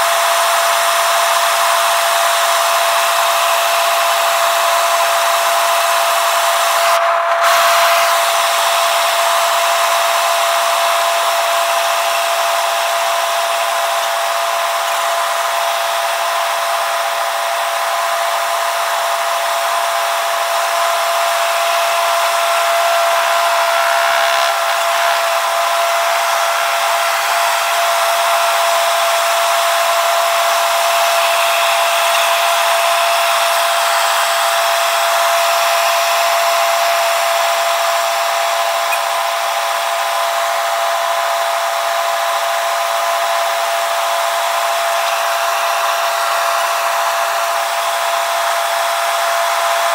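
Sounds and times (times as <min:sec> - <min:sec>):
helicopter engine and rotor drone: 0:24.6 - 0:49.9.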